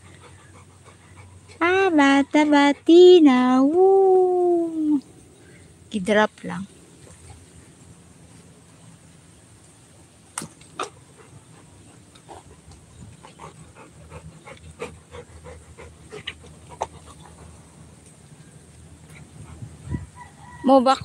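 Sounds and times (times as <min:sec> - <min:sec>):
dog panting: 0:00.0 - 0:03.0, 0:10.8 - 0:18.0, 0:19.0 - 0:19.9.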